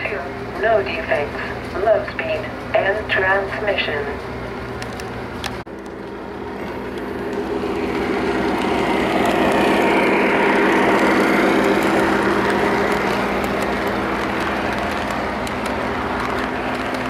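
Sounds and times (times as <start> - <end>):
model train running past: 0.0 - 17.0.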